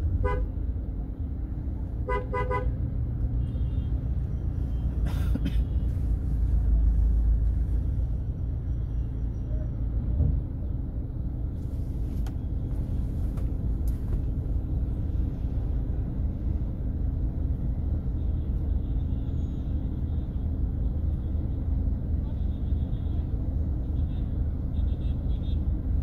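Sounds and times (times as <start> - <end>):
constant low hum: 0.0 - 19.0
vehicle rumble on road: 0.0 - 26.0.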